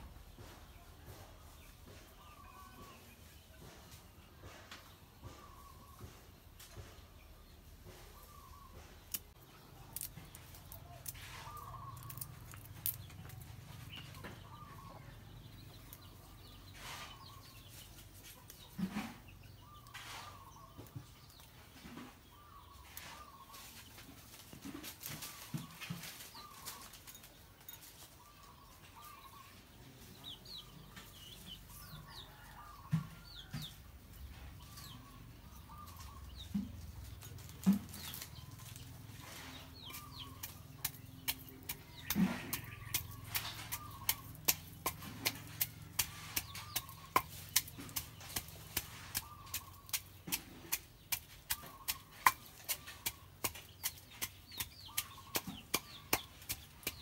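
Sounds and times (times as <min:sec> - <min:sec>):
chickens clucking: 0:00.3 - 0:57.0
pestle pounding in stone mortar: 0:39.9 - 0:57.0.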